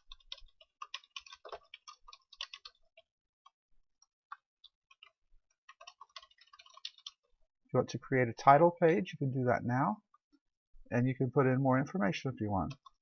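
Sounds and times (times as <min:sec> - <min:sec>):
computer keyboard typing: 0:00.0 - 0:03.6, 0:04.3 - 0:07.3.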